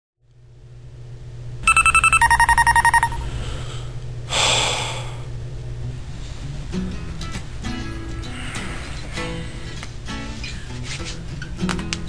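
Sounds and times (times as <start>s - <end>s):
low steady hum: 0.3s - 11.5s
electronic alarm beeping: 1.6s - 3.3s.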